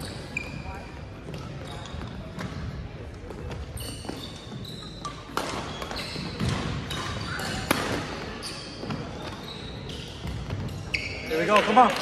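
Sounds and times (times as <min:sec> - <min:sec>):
shoes squeaking on gym floor: 0:00.0 - 0:11.9
racket hitting shuttlecock: 0:05.1 - 0:08.1.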